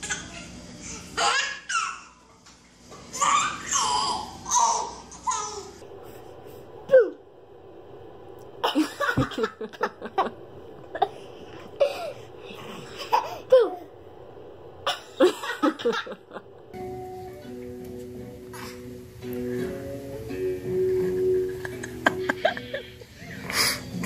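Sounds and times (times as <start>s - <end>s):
light background music: 16.8s - 22.9s.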